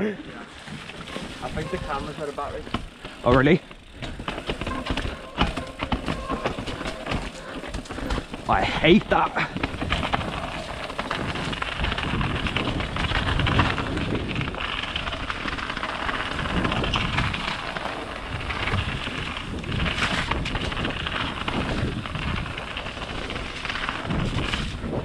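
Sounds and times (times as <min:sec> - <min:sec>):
mountain bike rumbling on rough trail: 0:00.0 - 0:25.0
bike knocks and jolts: 0:00.6 - 0:25.0
wind rushing over microphone: 0:01.0 - 0:25.0.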